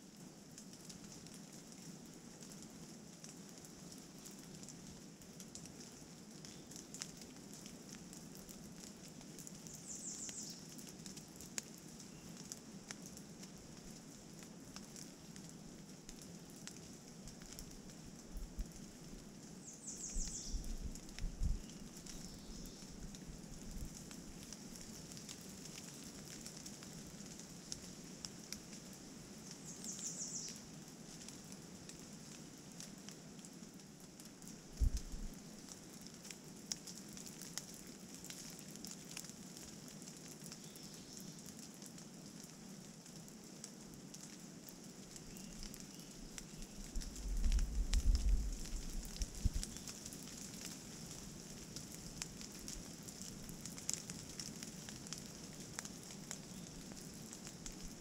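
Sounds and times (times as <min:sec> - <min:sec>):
rain in a forest: 0:00.0 - 0:58.0
wind gusts on microphone: 0:20.5 - 0:21.6, 0:34.8 - 0:35.3, 0:47.0 - 0:49.6.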